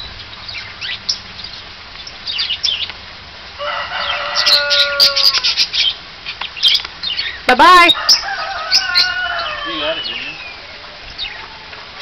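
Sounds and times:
parrots chirping and squawking: 3.7s - 12.0s.

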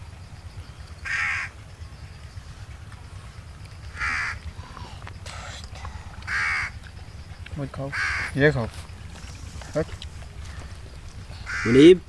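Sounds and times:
crow cawing: 1.0s - 1.6s, 3.9s - 12.0s.

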